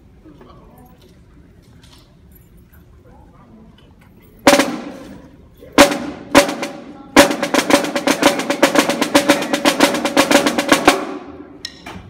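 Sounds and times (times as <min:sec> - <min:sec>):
snare drum strokes: 0:04.5 - 0:11.9.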